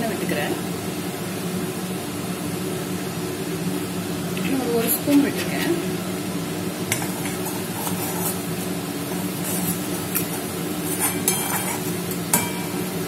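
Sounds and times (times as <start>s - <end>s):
steady low hum: 0.0s - 13.0s
spatula scraping paste in pan: 6.9s - 12.5s.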